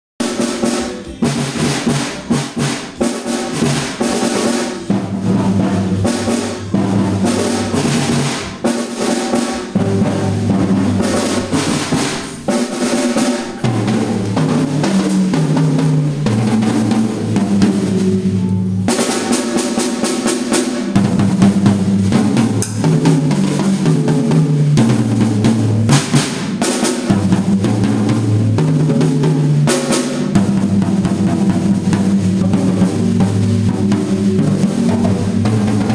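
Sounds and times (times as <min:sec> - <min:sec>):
bass line: 0:00.2 - 0:08.7, 0:09.3 - 0:19.4
drum kit: 0:00.2 - 0:35.9.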